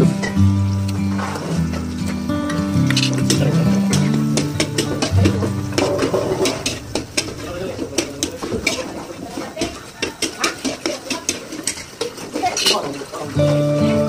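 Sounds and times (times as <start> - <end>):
garlic sizzling in oil: 0.0 - 14.0
metal spatula scraping wok: 2.5 - 13.3.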